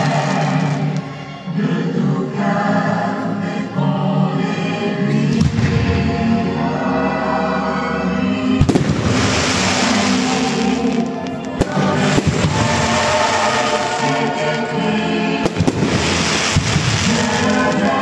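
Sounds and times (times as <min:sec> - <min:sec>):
music over sound system: 0:00.0 - 0:18.0
fireworks bangs: 0:08.6 - 0:14.7, 0:15.4 - 0:18.0.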